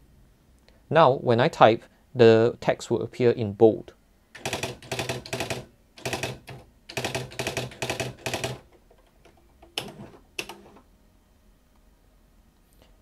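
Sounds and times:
typewriter print strikes: 0:04.4 - 0:08.7
typewriter clicks: 0:04.4 - 0:10.7.

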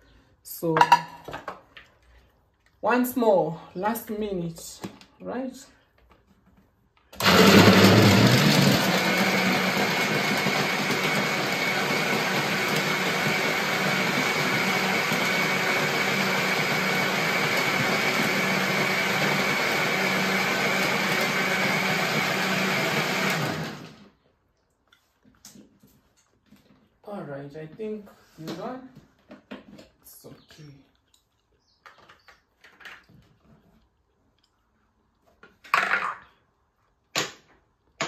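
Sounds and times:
electric blender whirring: 0:07.2 - 0:24.1.

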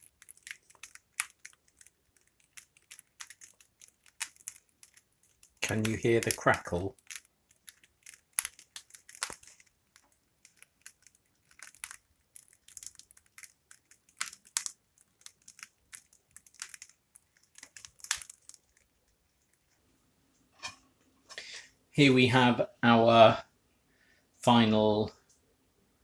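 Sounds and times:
bread crust crackling: 0:00.0 - 0:19.9.

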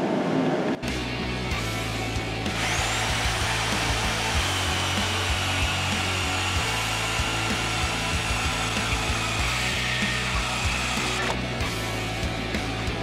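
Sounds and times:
saw blade whining through metal: 0:02.4 - 0:11.9
band saw motor hum: 0:02.4 - 0:12.0.

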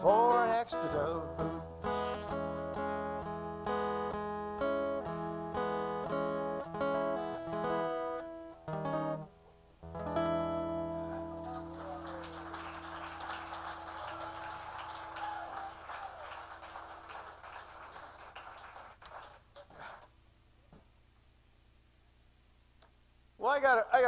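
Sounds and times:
acoustic guitar strumming: 0:00.0 - 0:14.3.

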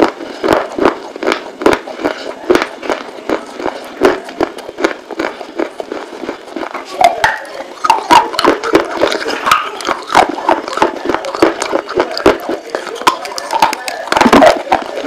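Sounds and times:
clay crunching while chewed: 0:00.0 - 0:15.0.

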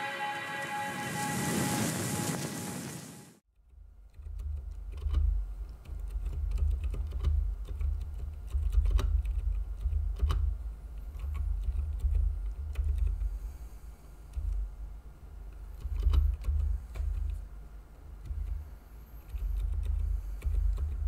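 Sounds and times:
muted keyboard typing: 0:04.2 - 0:13.4, 0:15.6 - 0:17.4, 0:18.2 - 0:21.0.

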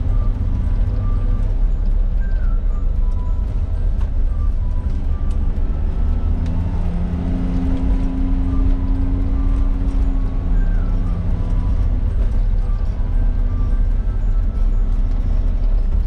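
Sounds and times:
car cabin engine rumble: 0:00.0 - 0:16.0.

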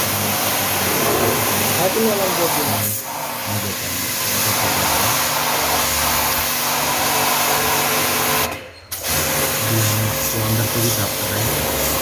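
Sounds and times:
water jet spraying on metal fins: 0:00.0 - 0:12.0
low motor hum: 0:00.7 - 0:02.6.

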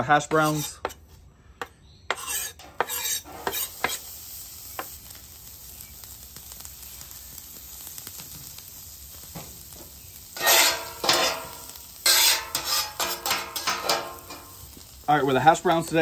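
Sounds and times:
fat sizzling on a griddle: 0:00.0 - 0:01.0, 0:01.6 - 0:16.0
metal spatula scraping steel: 0:00.0 - 0:01.0, 0:02.1 - 0:04.1, 0:10.4 - 0:14.6.

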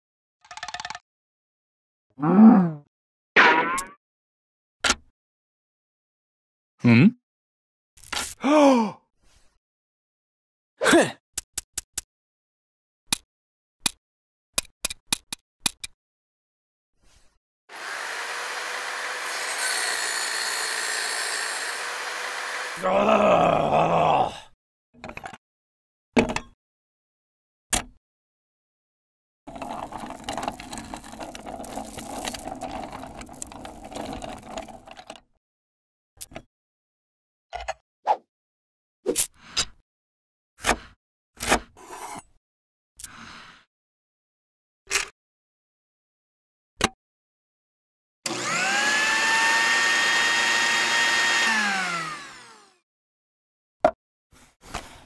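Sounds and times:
hand meat grinder running: 0:17.7 - 0:22.9, 0:29.5 - 0:35.1, 0:48.3 - 0:52.8
food chopper motor whining: 0:17.7 - 0:23.0, 0:29.5 - 0:35.1, 0:48.3 - 0:52.8.

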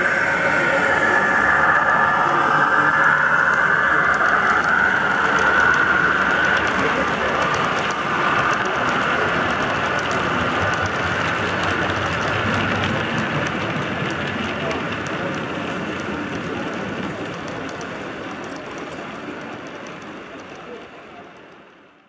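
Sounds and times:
model locomotive whine: 0:00.0 - 0:21.5
wagons rolling rumble: 0:01.7 - 0:20.8.

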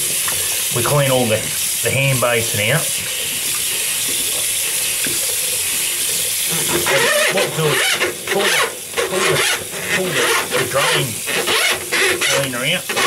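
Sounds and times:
tap water running into basin: 0:00.0 - 0:13.0
man talking: 0:00.7 - 0:03.0, 0:06.8 - 0:11.3, 0:12.2 - 0:12.9.

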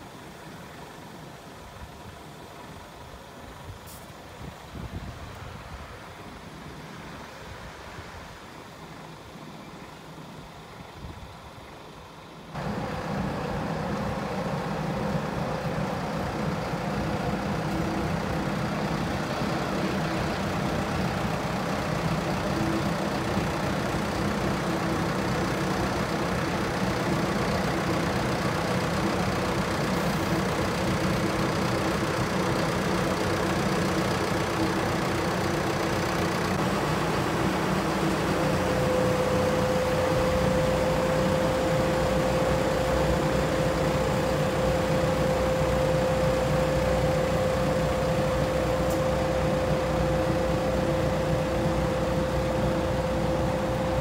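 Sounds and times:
steady whine: 0:00.0 - 0:54.0
diesel engine running: 0:12.6 - 0:54.0.

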